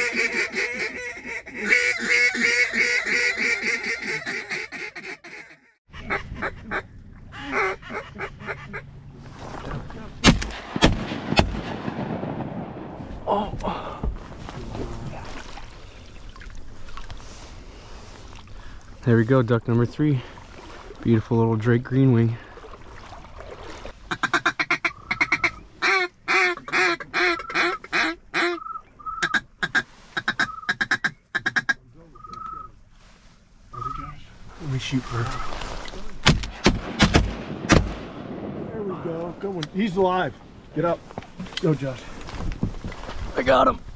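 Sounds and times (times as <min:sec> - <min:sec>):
ducks quacking: 0:00.0 - 0:09.0, 0:24.1 - 0:32.7
shotgun shots: 0:10.2 - 0:12.9, 0:36.2 - 0:38.6.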